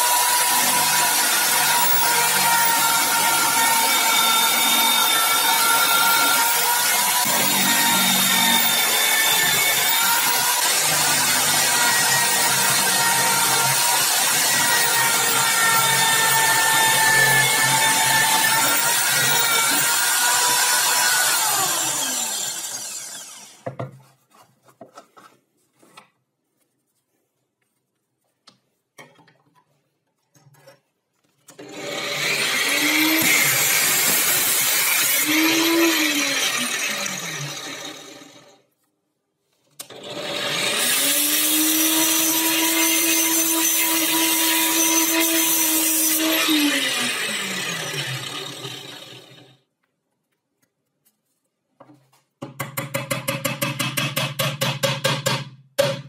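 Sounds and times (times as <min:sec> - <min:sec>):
angle grinder running: 0:00.0 - 0:23.6, 0:31.6 - 0:38.4
drill press drilling wood: 0:00.0 - 0:23.6, 0:31.6 - 0:38.5
power tool running: 0:00.0 - 0:23.6.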